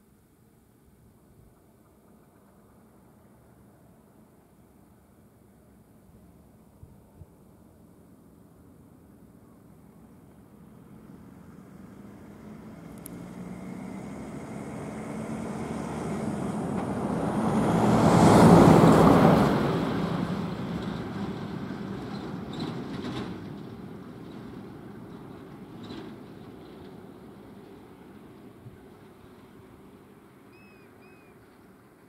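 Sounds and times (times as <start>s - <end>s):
vehicle driving past: 10.6s - 22.2s.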